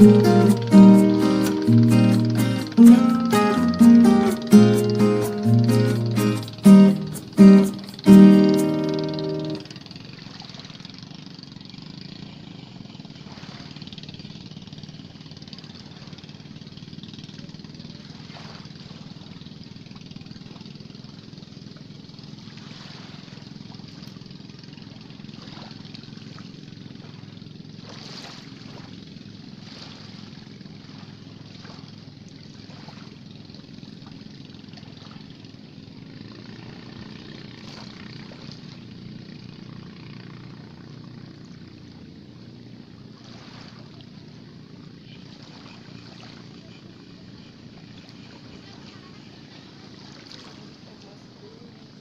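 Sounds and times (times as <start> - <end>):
low engine drone: 0.0 - 17.8, 33.2 - 52.0.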